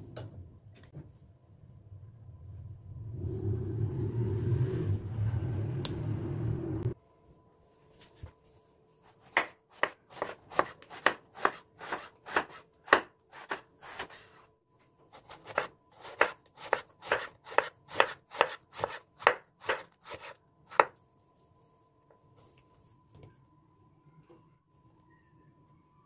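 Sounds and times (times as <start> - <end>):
knife chopping on wooden board: 9.3 - 14.2, 15.2 - 20.9.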